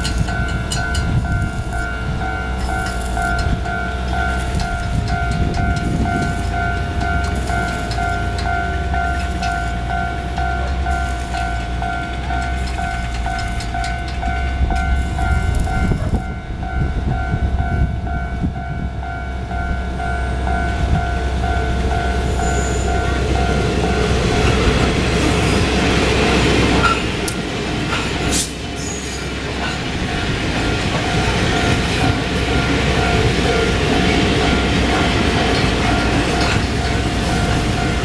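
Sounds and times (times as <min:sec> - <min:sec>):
pulsing ringing tone: 0:00.0 - 0:25.0
freight train rumble: 0:00.0 - 0:38.0.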